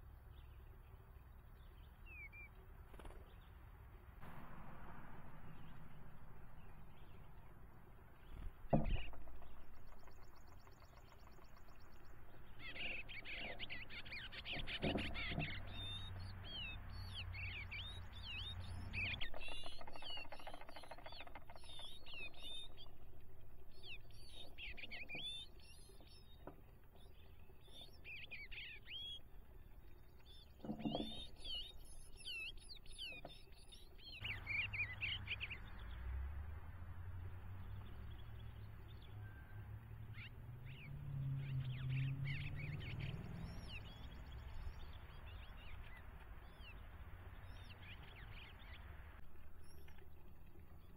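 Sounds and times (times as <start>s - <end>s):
songbirds chirping: 0.0s - 50.9s
dull thumps: 8.3s - 10.3s.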